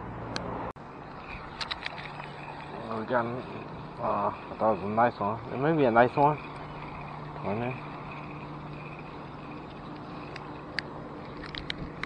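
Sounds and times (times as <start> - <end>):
outdoor background noise: 0.0 - 12.0
sharp clicks: 9.6 - 12.0.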